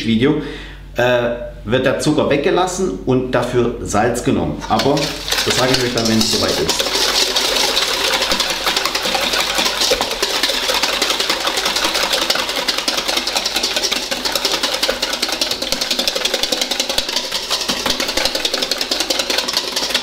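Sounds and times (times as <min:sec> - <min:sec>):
whisk beating in metal bowl: 0:04.6 - 0:20.0.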